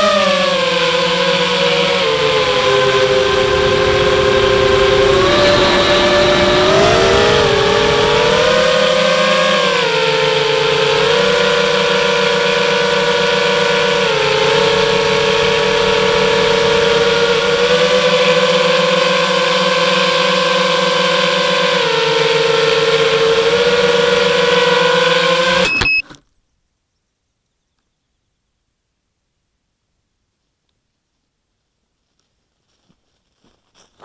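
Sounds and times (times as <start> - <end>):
quadcopter propellers whining: 0.0 - 26.2.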